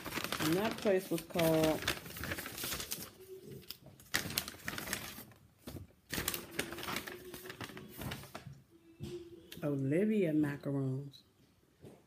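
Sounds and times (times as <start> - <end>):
plastic bag crinkling and rustling: 0.0 - 8.6.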